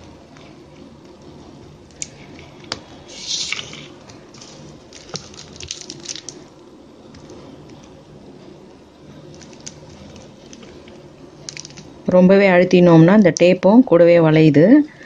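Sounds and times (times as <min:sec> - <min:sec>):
crinkly rustle: 0:04.3 - 0:06.4.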